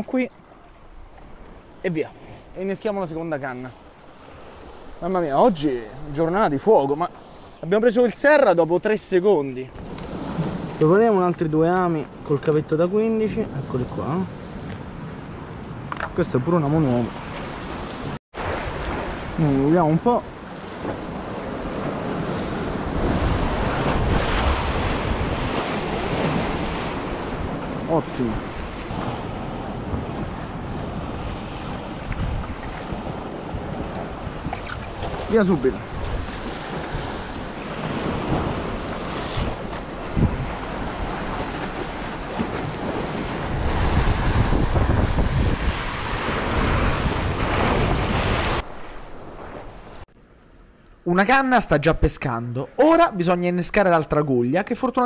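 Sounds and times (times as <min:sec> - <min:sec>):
waves breaking on rocky shore: 0:16.9 - 0:50.1
wind buffeting microphone: 0:20.3 - 0:50.0.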